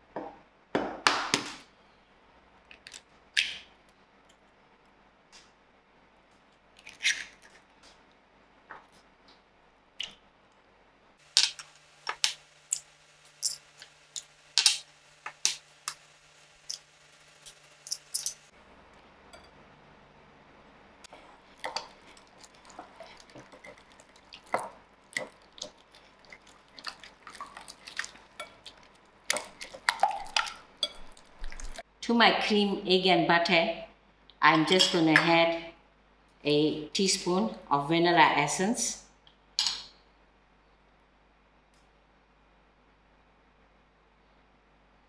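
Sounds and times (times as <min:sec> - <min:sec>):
whisk clinking glass bowl: 0:21.6 - 0:31.8.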